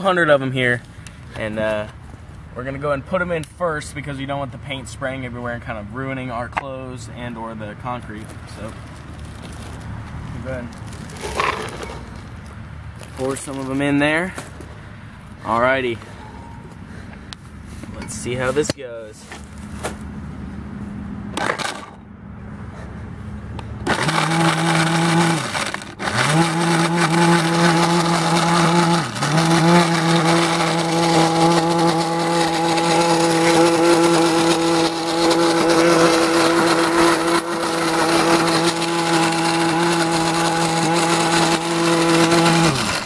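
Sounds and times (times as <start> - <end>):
blender motor running: 23.8 - 43.0.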